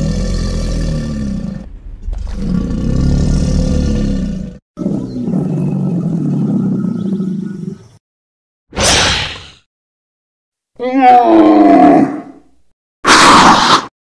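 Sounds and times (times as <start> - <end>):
deep monster roars: 0.0 - 7.8, 10.9 - 12.4.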